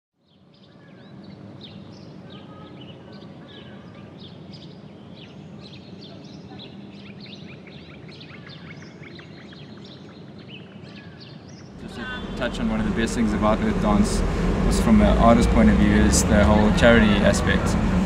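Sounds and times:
small birds chirping: 0.2 - 14.5
low background rumble: 11.7 - 18.0.

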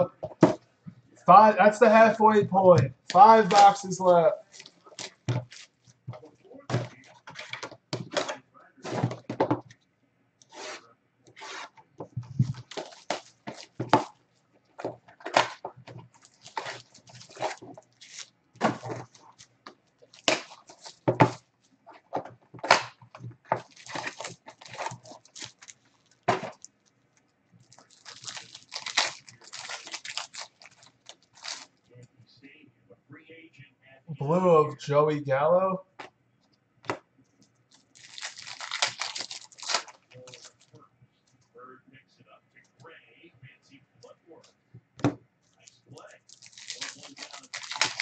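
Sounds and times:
wrapper crinkling: 1.9 - 9.2, 12.2 - 21.4, 23.5 - 31.8, 37.7 - 40.8, 45.5 - 48.0
wrapper tearing open: 16.2 - 19.5, 23.6 - 26.7, 27.6 - 31.7, 37.7 - 40.7, 46.0 - 48.0.

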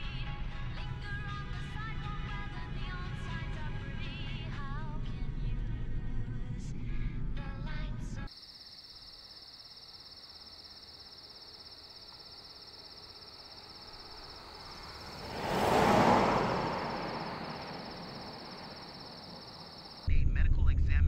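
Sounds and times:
crickets chirping: 8.3 - 20.1
car passing by: 12.6 - 20.1.

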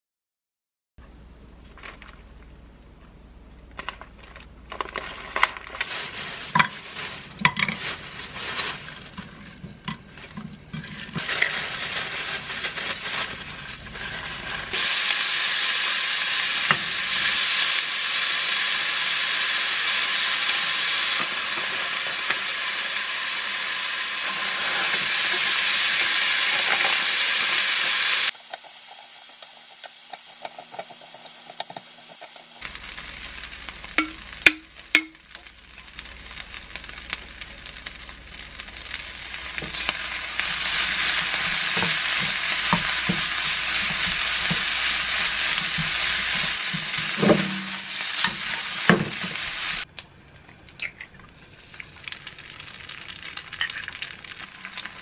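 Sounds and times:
meat sizzling in a frying pan: 11.2 - 49.9, 51.6 - 55.0.

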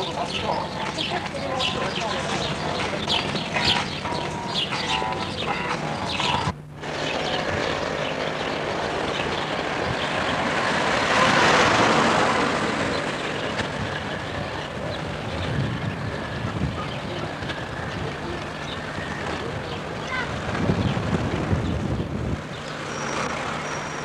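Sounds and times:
passing vehicle engine: 0.7 - 16.5.

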